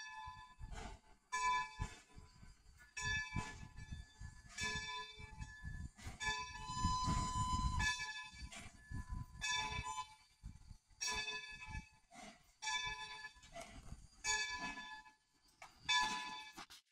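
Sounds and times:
locomotive bell ringing: 2.9s - 3.8s, 4.5s - 5.5s, 9.4s - 10.2s, 11.0s - 11.9s, 12.6s - 13.6s, 14.2s - 15.2s, 15.8s - 16.6s.

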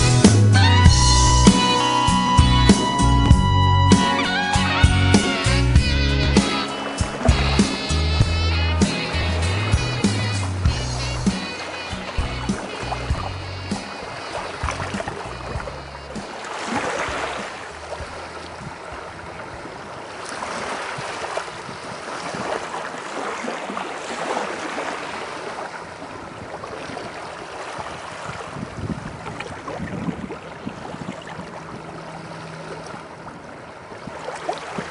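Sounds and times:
waves lapping on pebbles: 10.2s - 34.9s.

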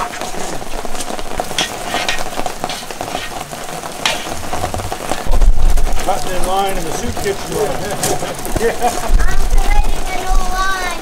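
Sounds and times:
steady hiss of steaming mush: 0.0s - 11.0s
paddle scraping and clinking: 1.5s - 5.2s.

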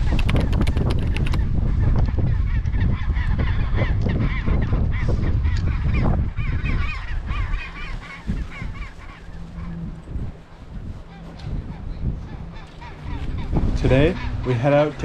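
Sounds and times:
low rumble: 1.3s - 15.0s
penguins honking calls: 11.0s - 15.0s.

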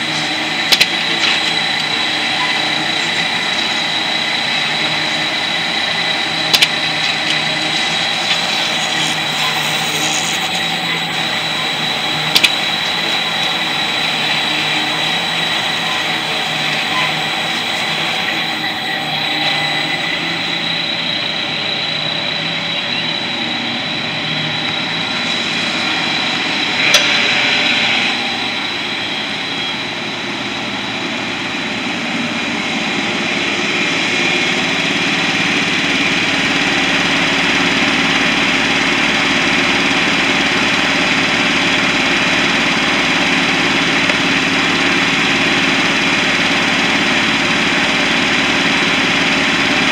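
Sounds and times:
sharp machine clacks: 0.0s - 21.9s
industrial machine whine: 0.0s - 49.9s.

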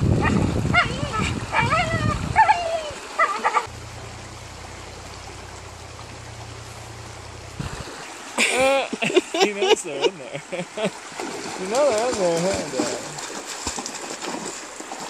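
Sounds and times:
low rumbling noise: 0.0s - 8.4s
dog whining and yelping: 0.2s - 3.7s.

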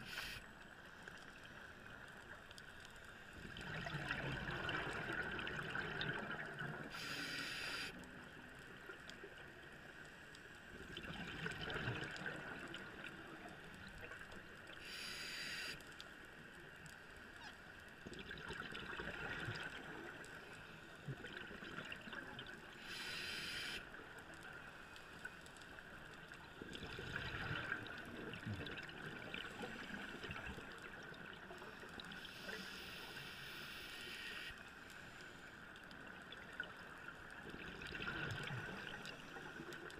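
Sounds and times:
regulator hiss on inhalation: 0.0s - 0.5s, 6.9s - 8.0s, 14.8s - 15.8s, 22.8s - 23.8s, 32.3s - 34.6s
bubbling gurgle on exhalation: 3.6s - 6.8s.

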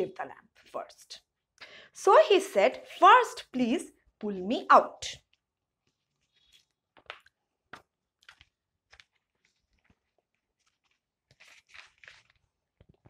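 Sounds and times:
paper pages turning: 5.8s - 13.0s.

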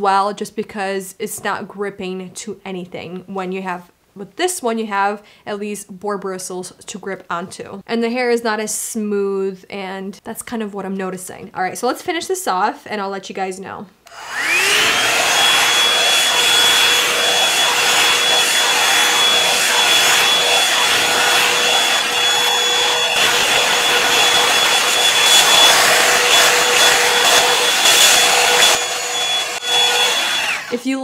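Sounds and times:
brush drawn through hair: 14.1s - 30.8s
hair dryer blowing air: 14.1s - 31.0s.

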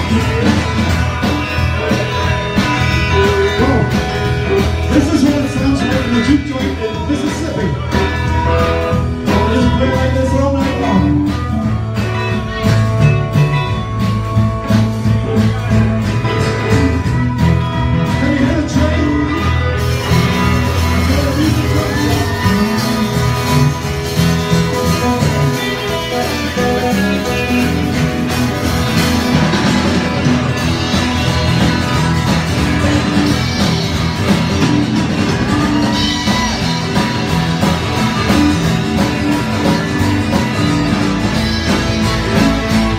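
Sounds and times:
man singing: 0.0s - 13.0s, 15.0s - 29.0s
harmonica held notes: 0.0s - 42.9s
live country-rock band: 0.0s - 42.9s.

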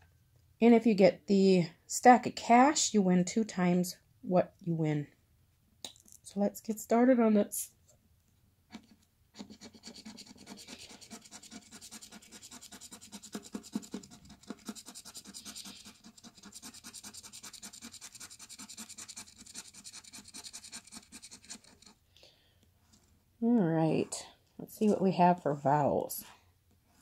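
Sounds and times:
scraper scratching lottery ticket: 9.4s - 22.0s.

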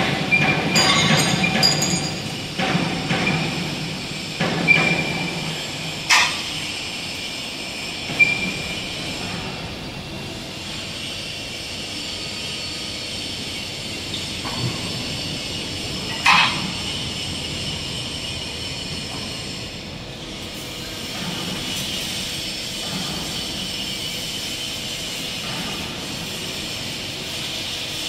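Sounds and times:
laser cutting machine hiss: 0.2s - 28.0s
metal clanks: 0.3s - 3.6s, 16.1s - 16.8s.

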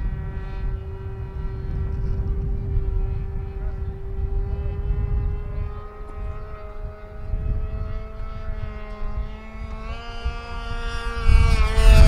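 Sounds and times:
model airplane engine droning: 0.0s - 12.0s.

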